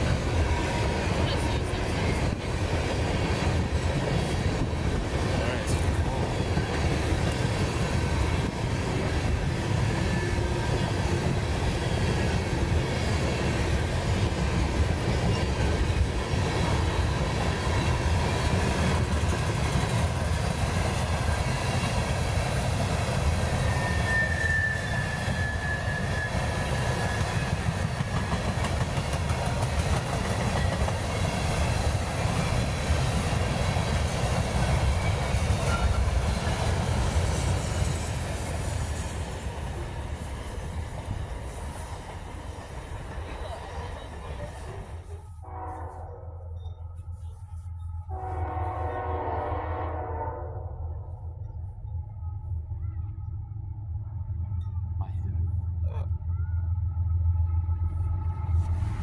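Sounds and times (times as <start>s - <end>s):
train wheels rolling on rails: 0.0s - 45.7s
wheel squeal: 23.6s - 27.3s.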